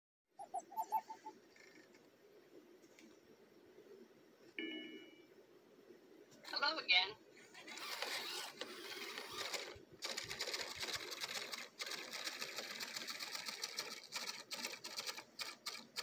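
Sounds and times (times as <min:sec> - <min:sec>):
robot servo motors whirring: 0:07.6 - 0:15.9.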